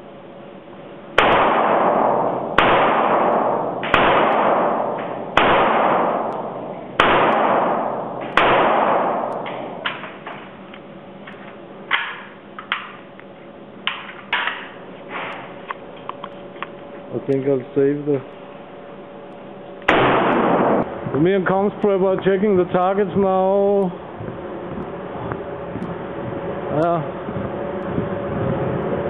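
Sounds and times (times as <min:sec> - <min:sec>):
rifle shots echoing indoors: 0:01.2 - 0:10.4, 0:19.8 - 0:21.0.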